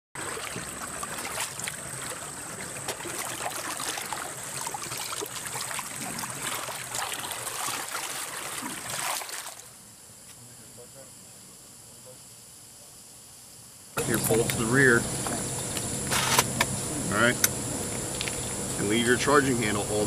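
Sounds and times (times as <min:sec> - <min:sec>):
muddy water sloshing and splashing: 0:00.2 - 0:09.7.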